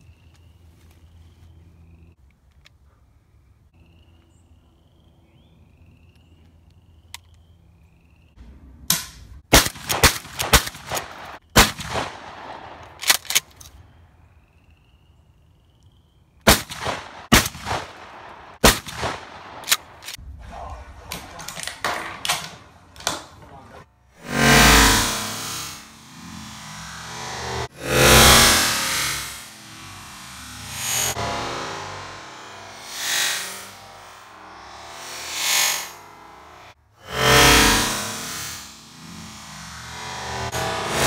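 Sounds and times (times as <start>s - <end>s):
shotgun shots with echo: 8.9s - 13.2s, 16.5s - 23.4s.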